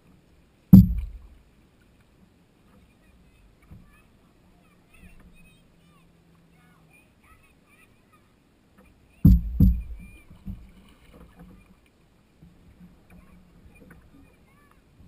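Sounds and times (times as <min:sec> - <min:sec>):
dull knocks on canoe hull: 0:00.8 - 0:01.4, 0:09.3 - 0:10.7.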